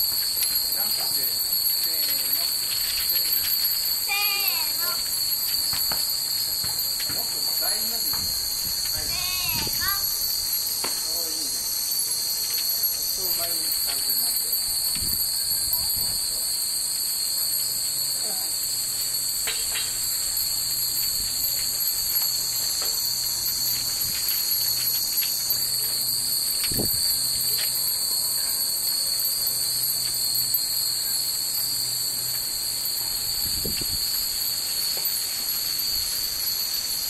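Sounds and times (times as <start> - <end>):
cicadas buzzing: 0.0 - 37.0
wind chimes tinkling: 0.0 - 37.0.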